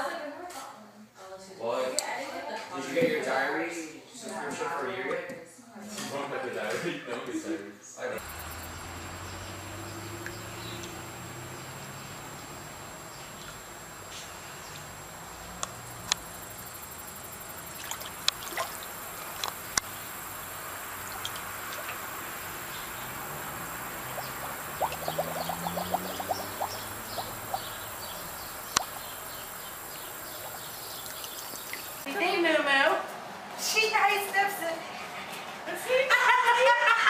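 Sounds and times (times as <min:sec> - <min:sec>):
hose water trickling into pool: 0:08.2 - 0:32.1
dog splashing in water: 0:17.4 - 0:32.0.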